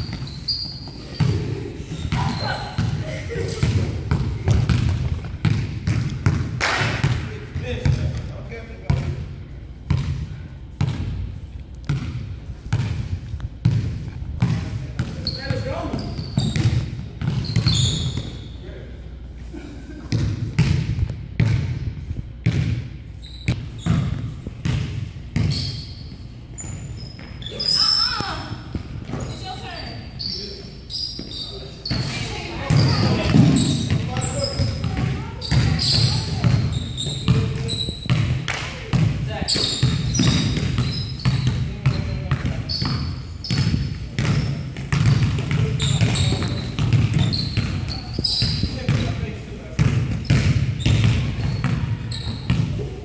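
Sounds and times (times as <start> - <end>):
sneakers squeaking: 0.0 - 53.0
basketball bouncing on wooden floor: 3.6 - 8.2, 9.9 - 11.2, 11.9 - 18.3, 20.1 - 21.8, 22.4 - 22.8, 23.5 - 25.7, 32.7 - 49.2, 49.8 - 52.8.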